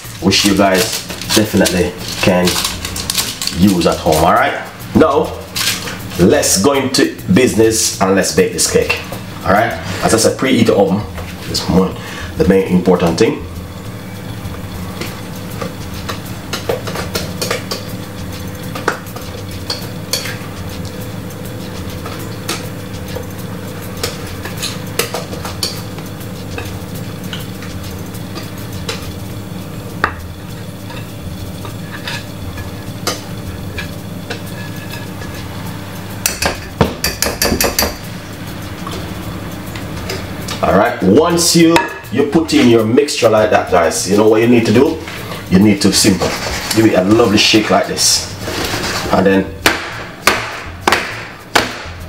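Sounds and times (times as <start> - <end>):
utensil scraping a bowl: 14.9 - 29.2, 43.6 - 49.4.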